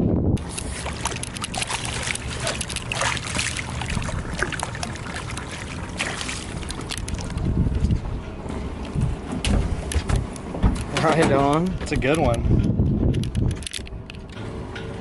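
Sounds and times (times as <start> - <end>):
steady low hum: 0.0 - 15.0
fish splashing in water: 0.4 - 7.5.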